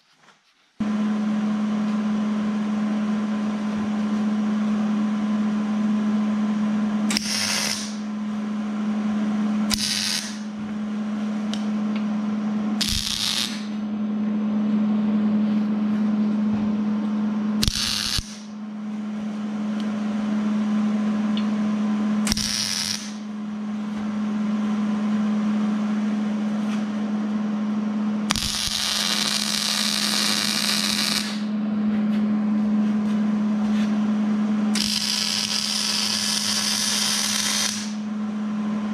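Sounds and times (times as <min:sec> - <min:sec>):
steady low hum: 0:00.0 - 0:38.9
arc welding crackle: 0:07.1 - 0:08.0, 0:09.7 - 0:10.5, 0:12.8 - 0:13.8, 0:17.6 - 0:18.5, 0:22.3 - 0:23.3, 0:28.3 - 0:31.5, 0:34.7 - 0:38.0.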